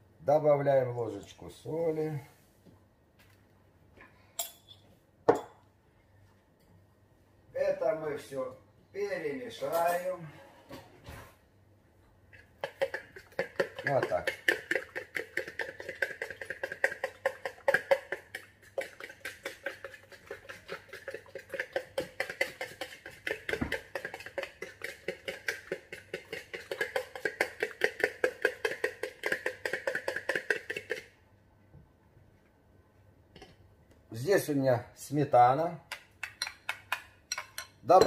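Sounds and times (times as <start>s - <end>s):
fork beating egg in bowl: 12.3s - 31.2s, 35.8s - 38.0s.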